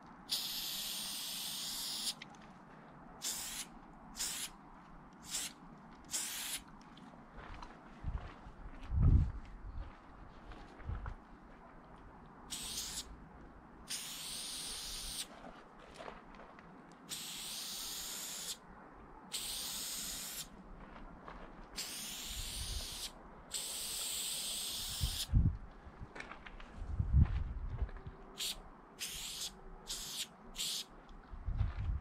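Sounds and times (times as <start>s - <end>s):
spray paint can hissing: 0.3s - 2.2s, 3.2s - 4.6s, 5.2s - 6.6s, 12.5s - 13.1s, 13.9s - 15.3s, 17.1s - 18.6s, 19.3s - 20.5s, 21.8s - 25.3s, 28.4s - 30.9s.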